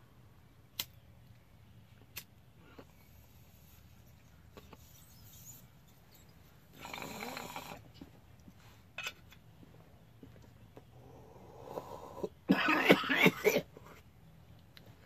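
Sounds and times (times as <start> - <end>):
sharp click: 0.8 - 1.0.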